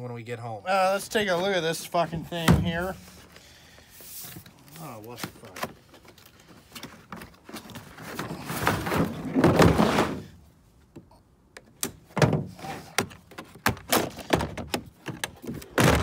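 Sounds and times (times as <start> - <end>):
plastic case sliding out of box: 6.7 - 10.4.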